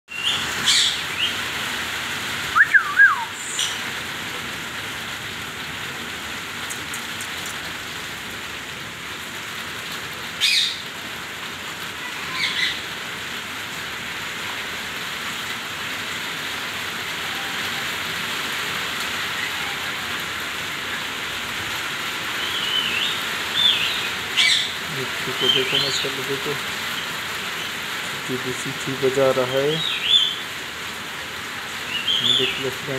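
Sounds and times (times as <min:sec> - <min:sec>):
parakeet shrill calls: 0:00.1 - 0:01.4, 0:02.6 - 0:03.8, 0:10.4 - 0:10.8, 0:12.1 - 0:12.8, 0:22.4 - 0:24.8
parakeet gliding whistles: 0:02.5 - 0:03.8.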